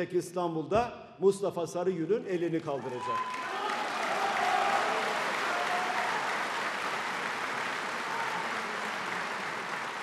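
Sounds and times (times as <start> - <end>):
audience applauding: 2.8 - 10.0.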